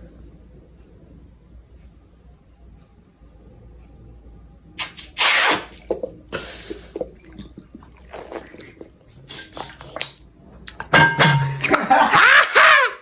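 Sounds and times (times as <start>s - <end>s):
liquid sloshing and gulping: 5.6s - 10.9s.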